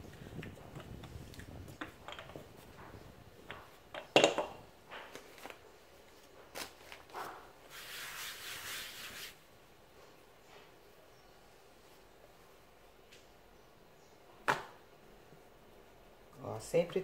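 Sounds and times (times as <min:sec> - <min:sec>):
hands sliding on dough: 0:07.2 - 0:09.4.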